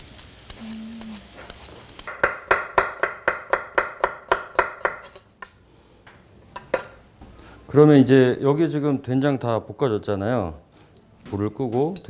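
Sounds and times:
faint sizzle from pan: 0:00.0 - 0:02.5.

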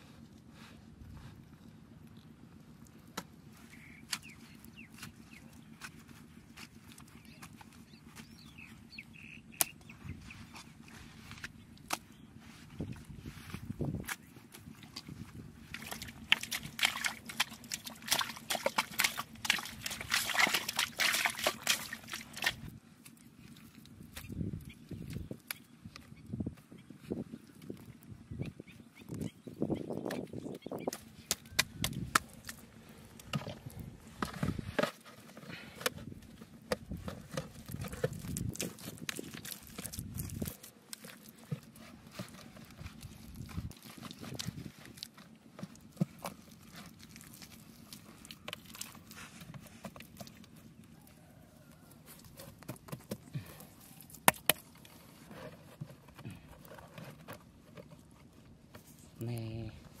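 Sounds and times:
wet mud squelching: 0:01.4 - 0:26.3, 0:27.1 - 1:00.0
wet mud slaps and squelches: 0:09.5 - 0:09.9, 0:14.0 - 0:23.2, 0:29.9 - 0:33.8, 0:36.7 - 0:41.7, 0:42.9 - 0:50.5, 0:53.8 - 0:55.0.

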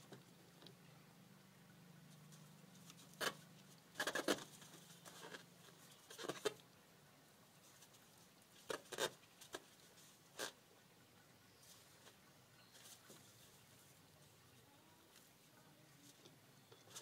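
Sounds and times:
faint low hum: 0:00.0 - 0:17.0.

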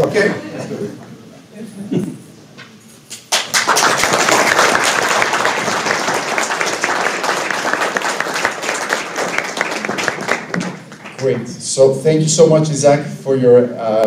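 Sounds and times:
audience applause: 0:03.3 - 0:11.6.

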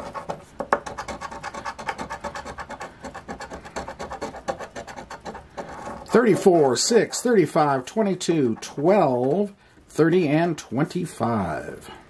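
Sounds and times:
scratching lottery ticket: 0:00.0 - 0:09.1.

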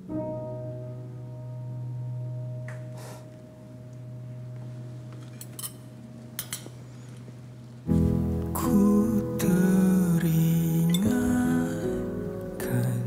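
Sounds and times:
quiet film score: 0:00.0 - 0:13.0
cutlery clinking on plates: 0:05.2 - 0:06.8.

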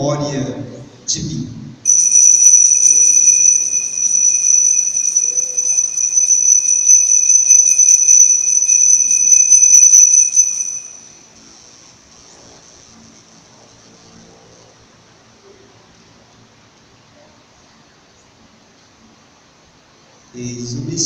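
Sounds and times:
altar bell ringing: 0:01.9 - 0:11.2.

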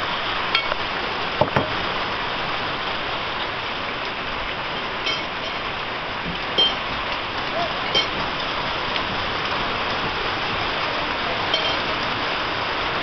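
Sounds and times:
heavy rain falling: 0:00.0 - 0:13.0
small knocks: 0:01.4 - 0:01.8.

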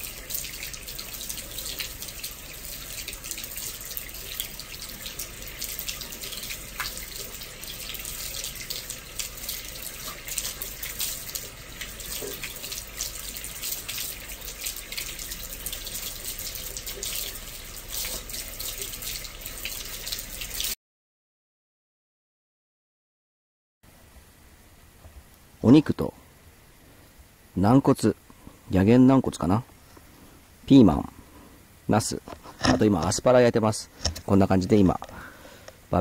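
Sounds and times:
water running into bathtub: 0:00.0 - 0:20.8.

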